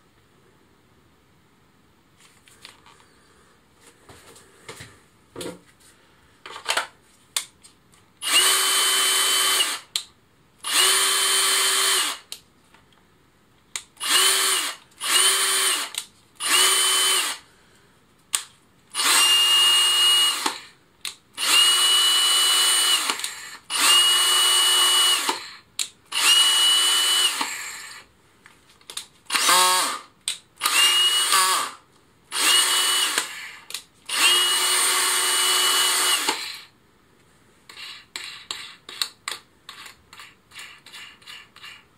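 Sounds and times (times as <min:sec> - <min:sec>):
cordless drill motor whining: 0:08.2 - 0:09.9, 0:10.6 - 0:12.2, 0:14.0 - 0:17.4, 0:19.0 - 0:20.7, 0:21.4 - 0:28.0, 0:30.6 - 0:36.7.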